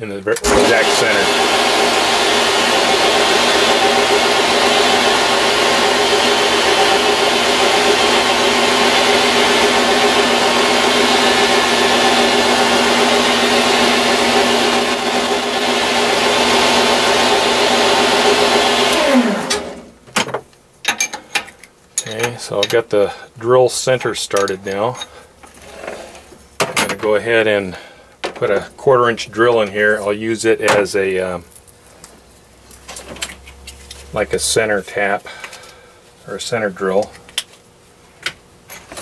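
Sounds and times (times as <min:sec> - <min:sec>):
lathe motor whining: 0:00.4 - 0:19.8
lathe spinning down: 0:00.4 - 0:19.8.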